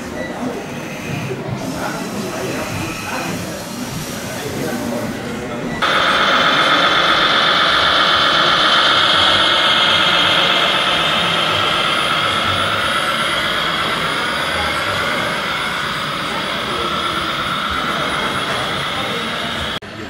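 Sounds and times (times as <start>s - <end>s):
electric motor whining: 5.8s - 19.8s.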